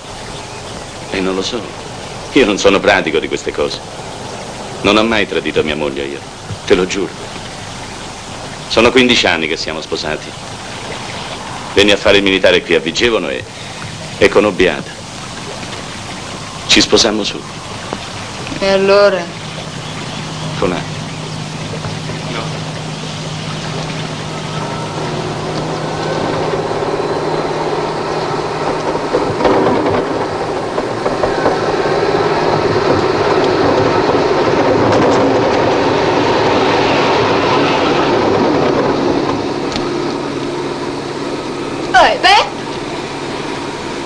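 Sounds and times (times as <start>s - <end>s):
steady low hum: 0.0s - 44.0s
train passing: 0.0s - 44.0s.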